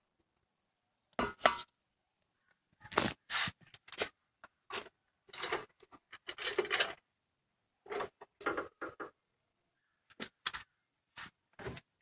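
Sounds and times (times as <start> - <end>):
metal tools scraping and clinking: 4.7 - 7.0.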